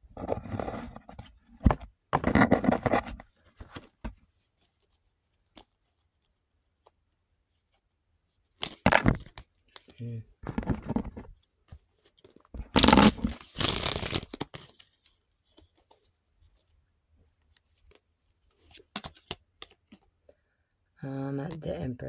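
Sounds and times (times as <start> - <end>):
cards riffle shuffling: 12.2 - 15.9.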